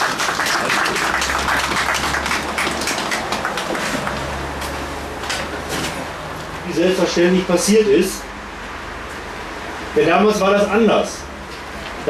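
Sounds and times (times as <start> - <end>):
crowd clapping: 0.0 - 4.7.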